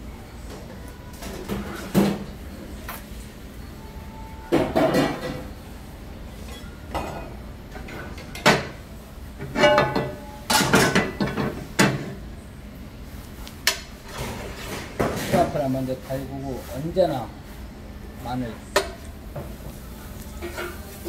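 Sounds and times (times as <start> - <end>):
pots and utensils knocking: 4.5 - 5.4, 9.4 - 12.1
metal kitchenware clanking: 9.4 - 12.1.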